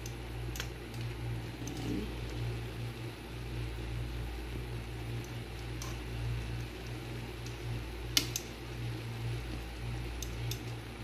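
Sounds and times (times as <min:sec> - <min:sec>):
low mechanical hum: 0:00.0 - 0:11.0
meat cooking in a frying pan: 0:02.6 - 0:11.0.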